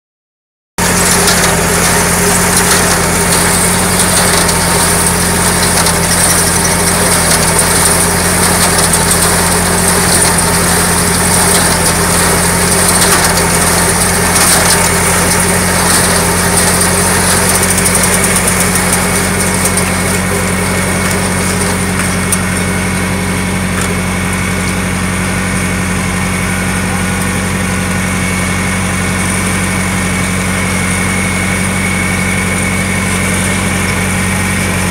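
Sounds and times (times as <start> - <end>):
tractor engine running: 0.8 - 34.9.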